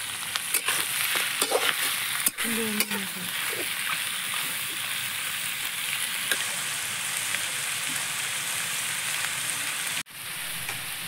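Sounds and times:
meat and onions sizzling in oil: 0.0s - 11.0s.

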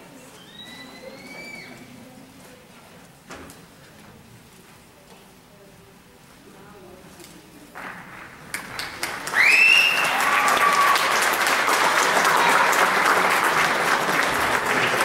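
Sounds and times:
audience applause: 7.8s - 15.0s.

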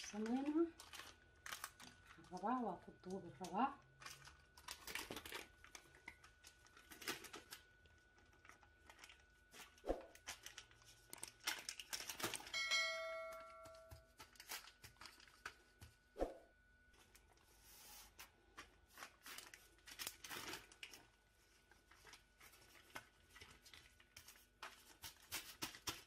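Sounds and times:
baking paper crinkling: 0.0s - 12.8s, 13.9s - 16.1s, 17.0s - 26.0s
steady ringing tone: 12.4s - 14.2s.

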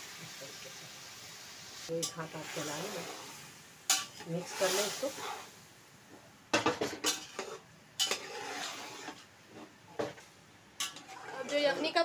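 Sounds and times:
spoon scraping rice in metal pot: 6.9s - 10.2s, 10.8s - 12.0s.

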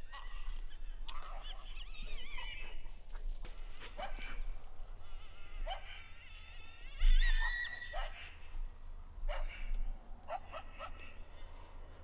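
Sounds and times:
dog barking: 3.9s - 4.4s, 5.6s - 6.0s, 7.9s - 8.3s, 9.3s - 9.7s, 10.3s - 11.1s.

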